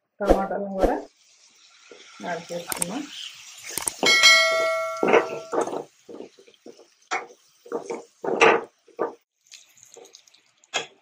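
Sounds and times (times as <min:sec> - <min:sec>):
metal ladle striking pan ringing: 0:04.0 - 0:05.7
ladle scraping and knocking pan: 0:04.0 - 0:09.2.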